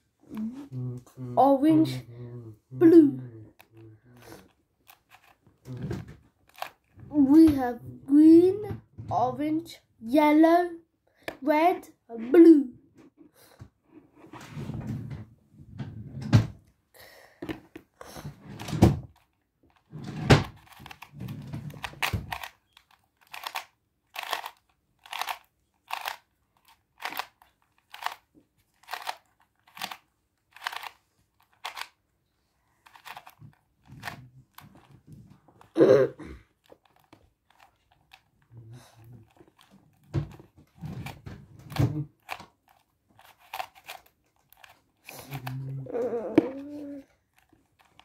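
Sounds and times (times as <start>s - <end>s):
puzzle cube layers clicking: 6.5s - 6.9s, 20.5s - 32.0s, 32.8s - 34.9s, 41.0s - 48.0s.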